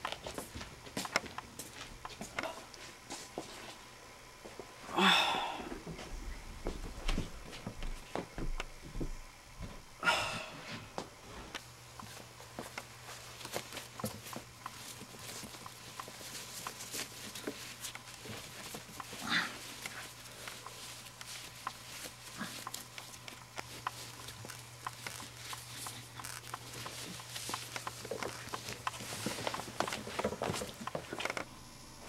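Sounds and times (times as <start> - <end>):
low electrical hum: 0.0 - 32.0
rope rubbing and rustling: 12.0 - 31.5.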